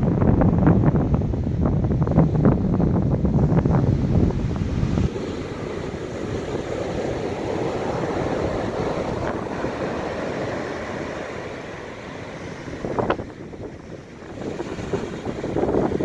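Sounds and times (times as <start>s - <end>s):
big waves breaking: 0.0s - 16.0s
foam rushing up the beach: 0.4s - 16.0s.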